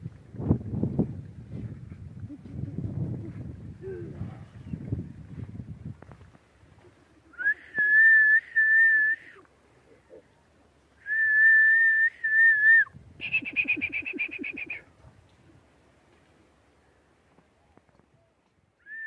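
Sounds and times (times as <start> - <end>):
person whistling high notes: 7.4 - 9.4, 11.0 - 14.8.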